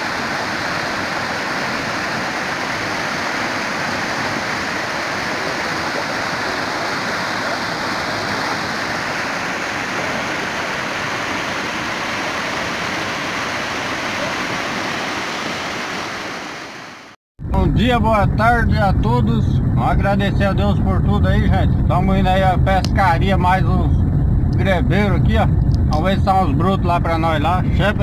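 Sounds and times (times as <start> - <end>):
water rushing over rocks: 0.0 - 17.2.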